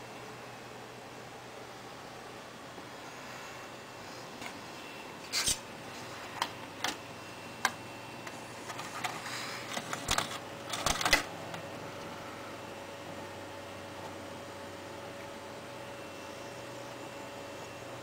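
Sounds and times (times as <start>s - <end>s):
computer hum: 0.0s - 18.0s
disc drive clicking and rattling: 6.3s - 12.1s.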